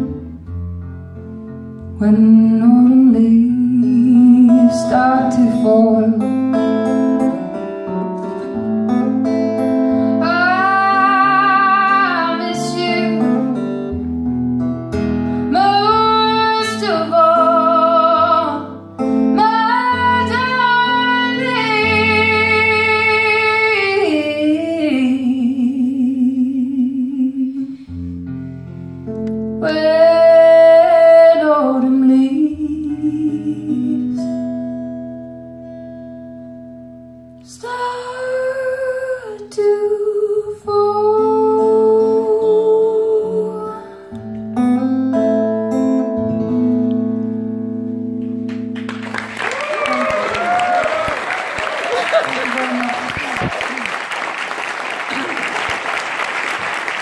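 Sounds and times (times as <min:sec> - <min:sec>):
acoustic guitar: 0:00.0 - 0:57.0
woman singing with vibrato: 0:02.0 - 0:06.6, 0:10.2 - 0:13.6, 0:15.5 - 0:27.8, 0:29.6 - 0:34.3, 0:37.5 - 0:44.0.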